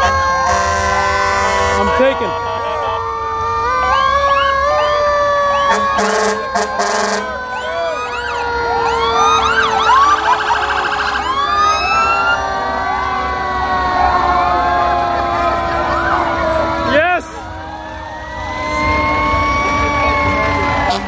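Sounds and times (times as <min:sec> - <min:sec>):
horn blast: 0:00.0 - 0:02.3, 0:05.6 - 0:07.4
mechanical siren sliding down: 0:00.0 - 0:21.0
rapid warbling siren: 0:00.0 - 0:21.0
whooping siren sweeps: 0:00.0 - 0:21.0.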